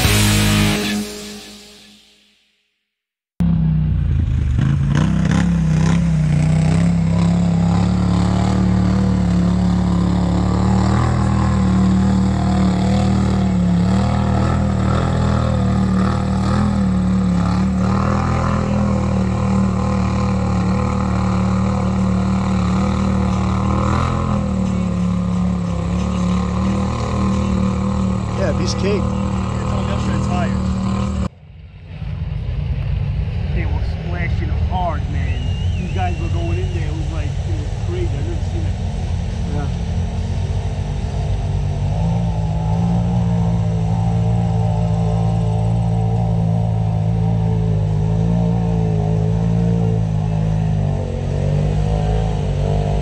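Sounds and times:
engine droning steadily: 3.4s - 53.0s.

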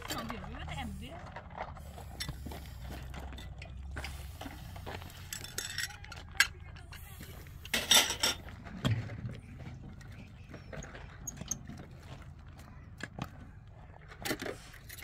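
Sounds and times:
objects clattering: 0.0s - 15.0s
hard objects clinking: 5.1s - 7.0s.

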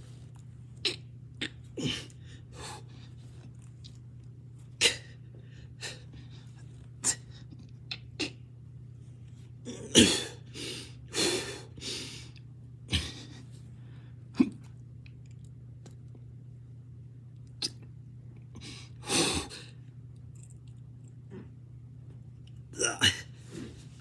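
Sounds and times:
low steady hum: 0.0s - 24.0s
man straining exhalations and grunts: 0.8s - 2.8s, 22.8s - 23.7s.

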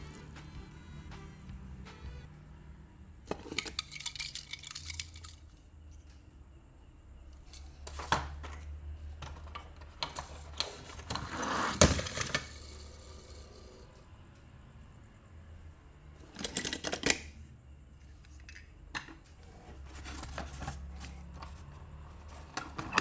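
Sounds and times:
toy cars clinking and clattering: 3.2s - 6.2s, 7.4s - 14.0s, 16.2s - 17.4s.

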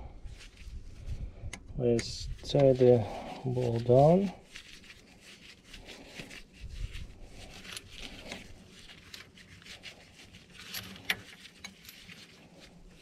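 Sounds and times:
chain rubbing and clinking: 2.9s - 13.0s.

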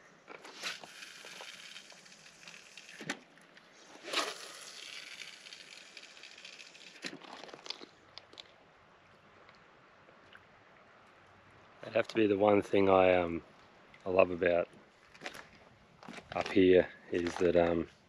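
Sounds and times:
reel winding whir: 0.4s - 3.1s, 4.1s - 7.0s.

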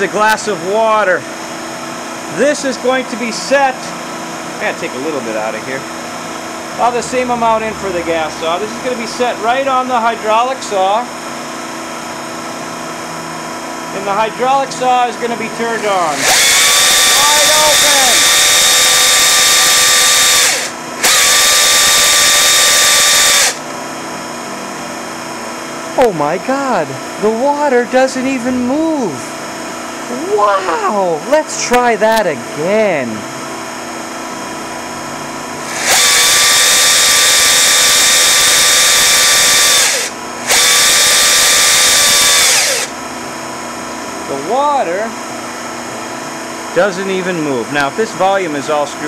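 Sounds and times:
chainsaw running: 15.9s - 23.6s, 35.6s - 43.0s
low steady hum: 28.0s - 33.6s.

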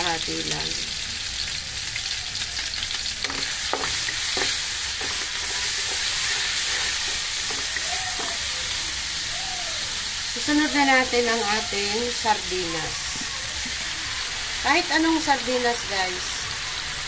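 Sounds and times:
garlic and tomato sizzling in oil: 0.0s - 17.0s
wooden spatula scraping a wok: 3.2s - 8.4s
spatula knocking against pan: 3.3s - 5.2s.

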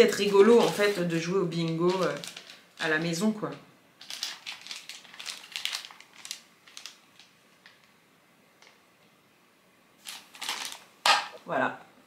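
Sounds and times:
plastic packaging crinkling: 0.0s - 8.0s, 10.0s - 11.4s.

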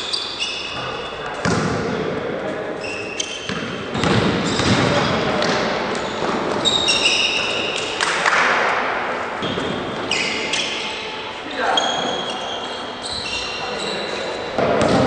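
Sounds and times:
sneakers squeaking on court: 0.0s - 1.8s, 2.7s - 8.0s, 9.4s - 15.0s
basketball bouncing on floor: 1.4s - 1.8s, 3.5s - 5.6s, 14.6s - 15.0s.

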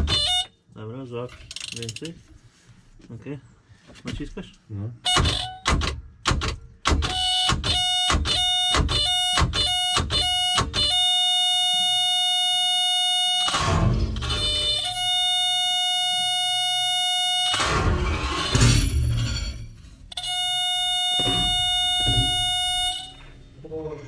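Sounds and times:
electric warning buzzer: 7.1s - 18.7s, 20.1s - 23.3s.

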